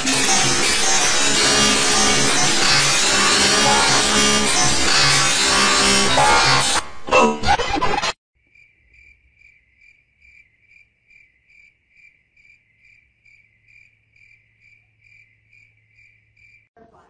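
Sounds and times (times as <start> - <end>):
cricket chirping: 8.4 - 16.7.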